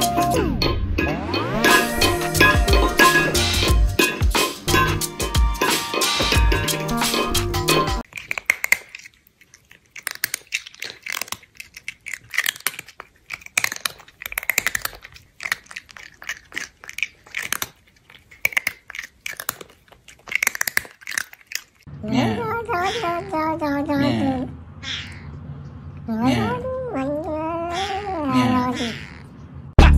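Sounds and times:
chewing mouth sounds: 1.7 - 21.9.

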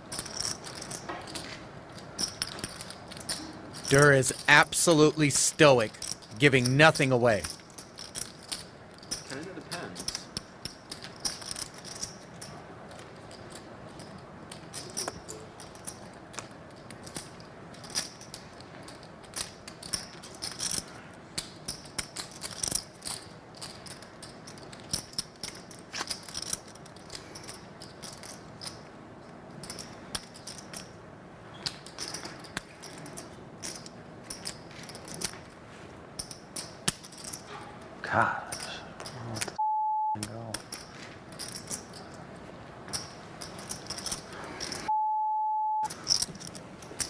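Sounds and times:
poker chips clicking: 2.2 - 9.3, 42.9 - 45.0.

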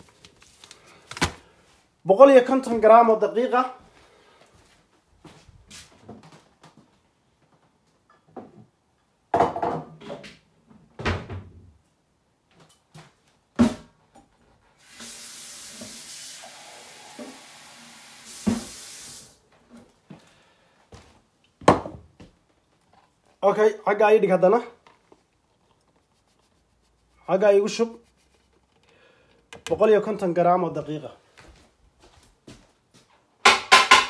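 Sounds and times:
steady hiss: 14.8 - 19.4.

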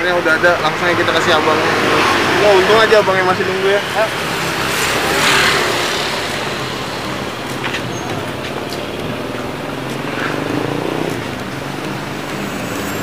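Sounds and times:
cars and motorbikes passing: 0.0 - 13.0.

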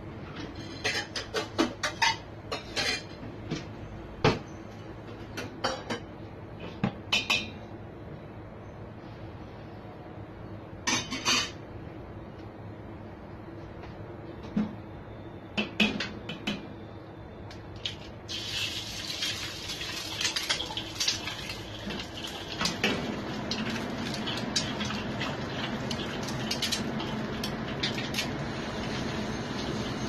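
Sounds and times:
eggs sizzling in hot oil: 18.3 - 30.0.

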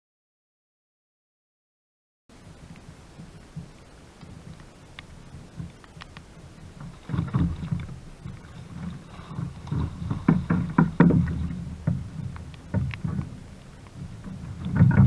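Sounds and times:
knocks on kayak hull: 9.8 - 12.1.

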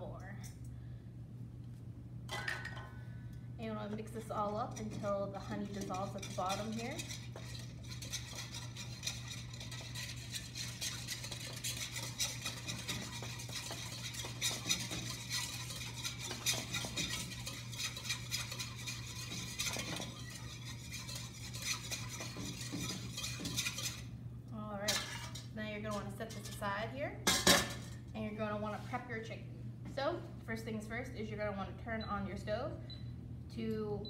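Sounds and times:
whisk scraping metal bowl: 3.8 - 24.2, 24.9 - 26.6.

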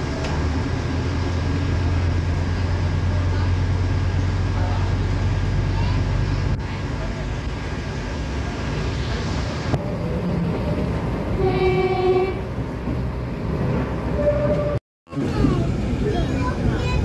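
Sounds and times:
railcar engine and wheels rumbling: 0.0 - 17.0
train horn: 11.4 - 12.5, 14.2 - 14.8.

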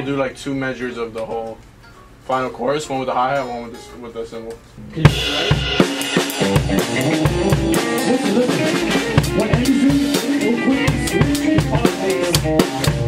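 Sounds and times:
drum kit quick strikes: 4.8 - 13.0
live rock band playing: 4.8 - 13.0.

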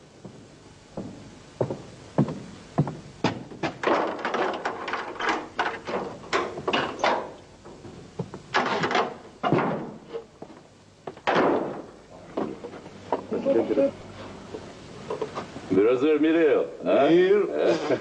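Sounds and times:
knocks and clatters: 1.0 - 10.0.

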